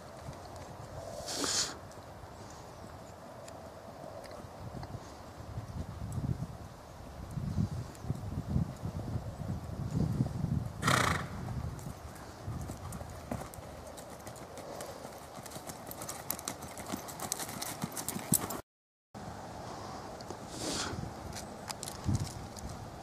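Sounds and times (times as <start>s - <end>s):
horse hoofbeats on dirt and leaves: 10.8s - 18.6s.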